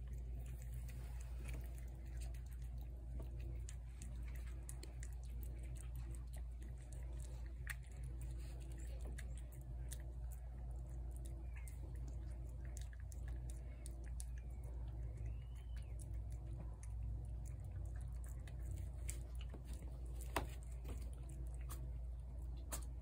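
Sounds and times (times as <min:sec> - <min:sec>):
cat chewing food: 0:00.0 - 0:23.0
low hum: 0:00.0 - 0:23.0.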